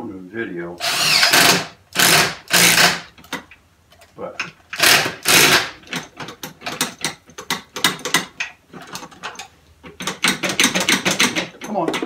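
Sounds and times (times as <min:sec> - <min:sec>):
drill metallic clicking and ratcheting: 0:00.8 - 0:03.4, 0:04.7 - 0:11.8.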